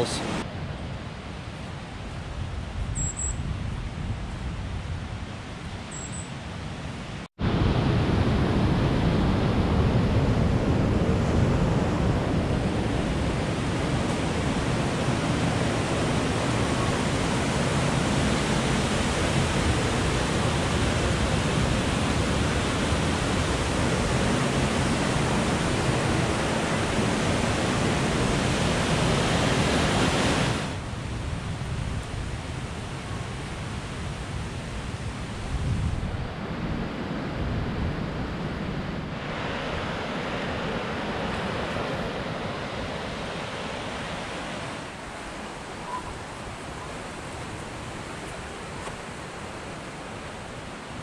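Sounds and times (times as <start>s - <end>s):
river rushing over rapids: 0.0s - 2.2s, 10.3s - 31.2s, 38.0s - 51.0s.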